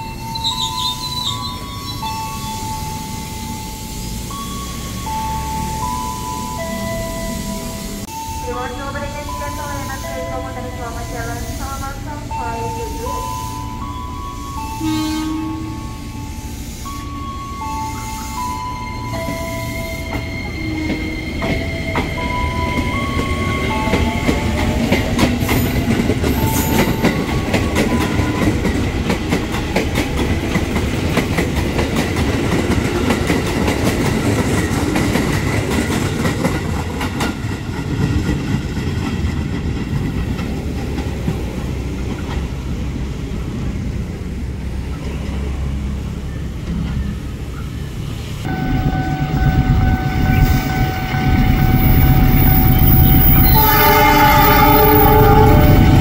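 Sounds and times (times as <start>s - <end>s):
electric train rumbling past: 0.0s - 56.0s
wheels clicking over rail joints: 19.1s - 42.8s.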